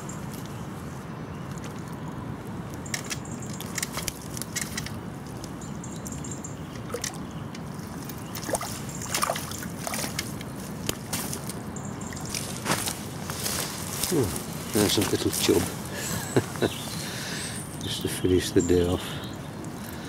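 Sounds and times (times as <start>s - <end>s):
water splashing and sloshing: 6.7s - 7.2s, 7.8s - 14.1s
river flowing: 7.8s - 17.8s.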